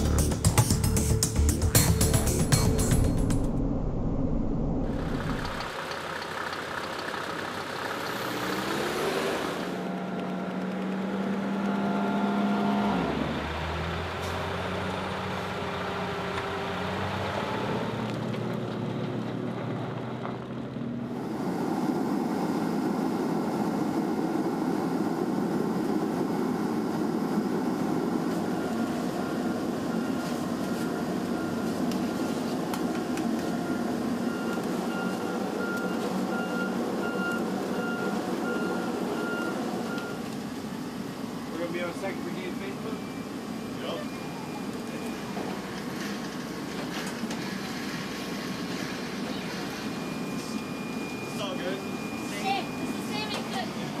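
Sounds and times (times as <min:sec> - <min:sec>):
tracked vehicle engine running: 0:00.0 - 0:54.0
short electronic beeps: 0:49.6 - 0:53.7.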